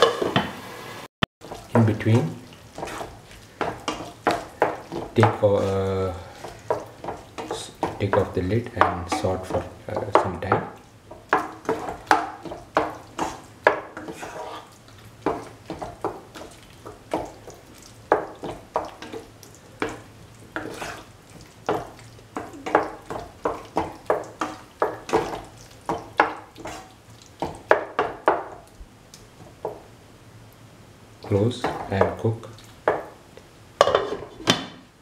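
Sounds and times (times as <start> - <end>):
light sizzle: 0.0 - 35.0
utensil scraping a pan: 1.4 - 16.5, 20.6 - 21.1, 26.2 - 27.0.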